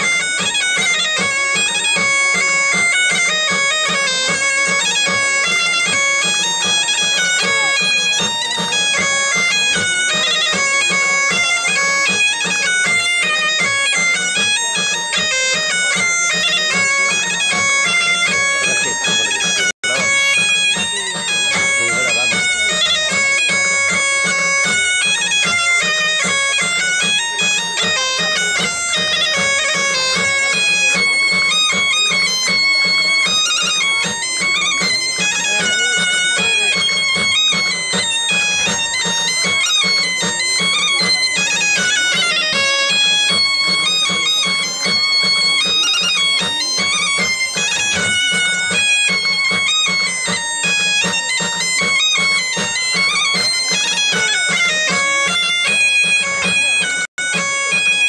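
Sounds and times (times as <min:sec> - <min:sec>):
bagpipe dance melody with drone: 0:00.0 - 0:58.0.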